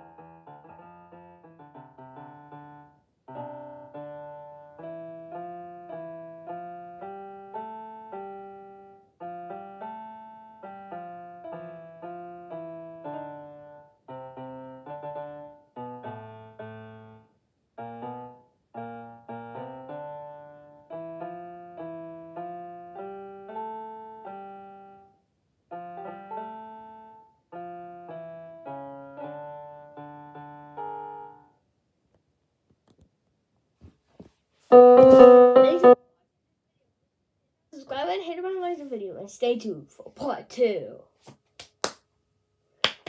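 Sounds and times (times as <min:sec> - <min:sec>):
piano music: 0:00.0 - 0:17.2, 0:17.8 - 0:25.1, 0:25.7 - 0:31.5, 0:34.7 - 0:36.0.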